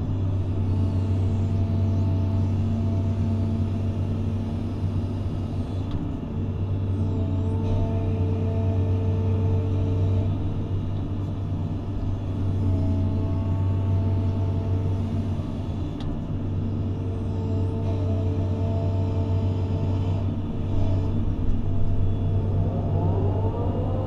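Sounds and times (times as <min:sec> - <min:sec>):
excavator diesel engine running: 0:00.0 - 0:24.0
hydraulic whine: 0:17.0 - 0:24.0.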